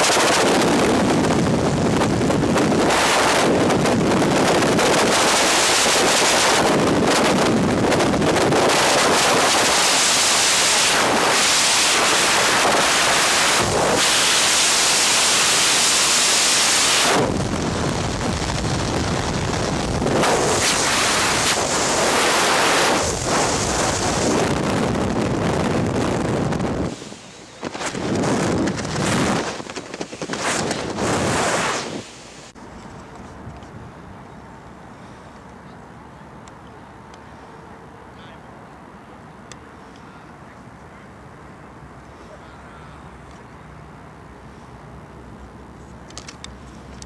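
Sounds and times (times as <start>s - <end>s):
freefall wind rushing over microphone: 0.0s - 36.3s.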